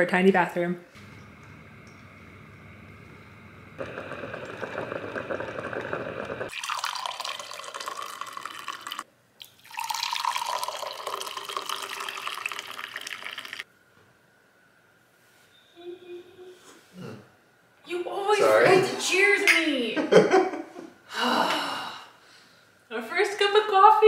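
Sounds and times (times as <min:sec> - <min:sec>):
coffee maker brewing: 0:01.0 - 0:13.7
coffee pouring into mugs: 0:03.8 - 0:13.6.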